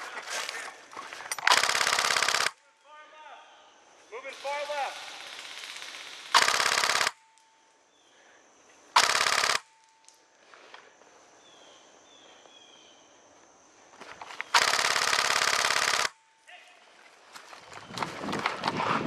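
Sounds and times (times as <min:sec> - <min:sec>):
airsoft gun full-auto bursts: 0:01.4 - 0:02.6, 0:04.4 - 0:07.3, 0:09.0 - 0:09.7, 0:14.5 - 0:16.2.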